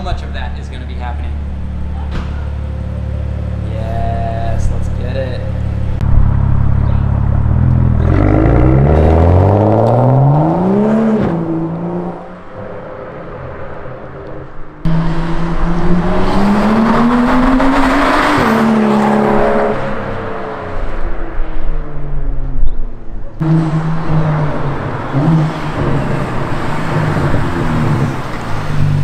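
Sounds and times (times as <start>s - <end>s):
car engine accelerating hard: 5.7s - 12.4s, 14.8s - 21.1s.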